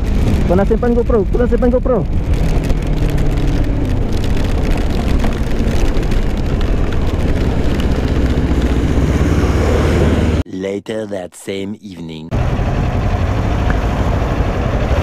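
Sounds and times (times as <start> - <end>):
raindrops ticking on camera: 0.0 - 9.2
wind and road noise: 0.0 - 10.5, 12.3 - 15.0.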